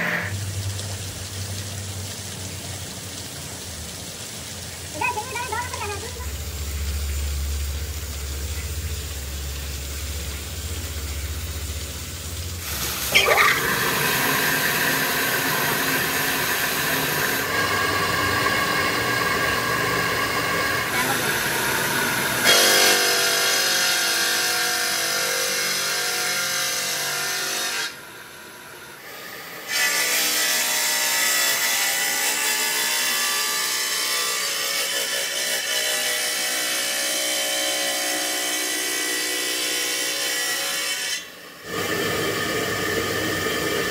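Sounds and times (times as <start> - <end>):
stone saw grinding whine: 0.0 - 0.4, 13.2 - 28.0, 29.6 - 43.9
water spray: 0.0 - 25.6.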